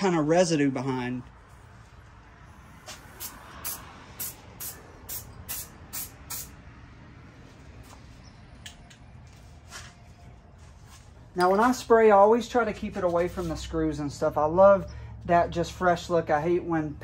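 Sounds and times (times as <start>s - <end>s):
aerosol spray can hissing: 2.9s - 6.5s.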